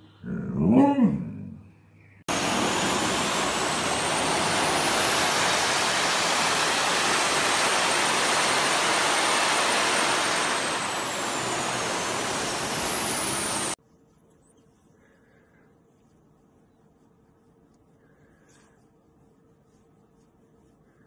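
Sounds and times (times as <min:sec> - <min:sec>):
jet suit turbines rushing and whining: 0:02.3 - 0:13.8.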